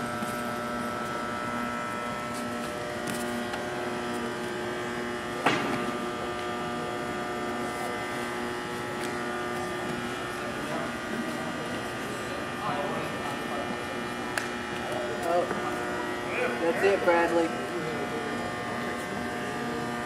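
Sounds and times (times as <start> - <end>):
steady electrical buzz: 0.0 - 20.0.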